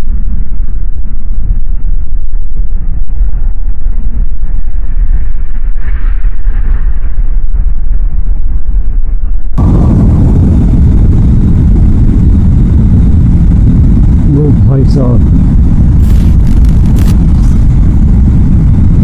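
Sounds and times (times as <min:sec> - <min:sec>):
motorcycle engine rumble: 0:09.6 - 0:19.0
wind buffeting microphone: 0:09.6 - 0:19.0.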